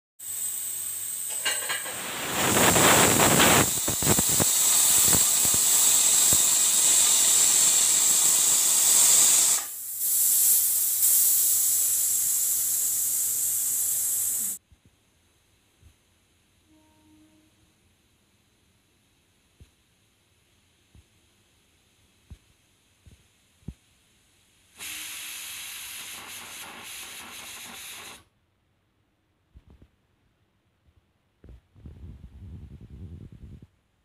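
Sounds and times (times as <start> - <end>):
pressure cooker steam hissing: 0.2 - 14.6, 24.7 - 28.3.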